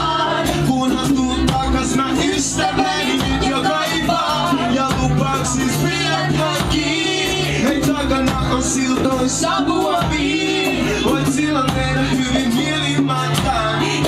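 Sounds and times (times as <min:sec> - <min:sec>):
bass line: 0:00.0 - 0:14.0
percussion beat: 0:00.0 - 0:14.0
person singing into microphone: 0:00.0 - 0:14.0.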